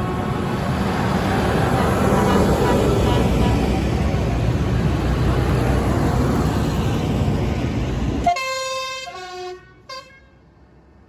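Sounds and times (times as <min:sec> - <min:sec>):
tractor engine and tyre rumble: 0:00.0 - 0:11.0
vehicle horn tooting: 0:08.3 - 0:10.3.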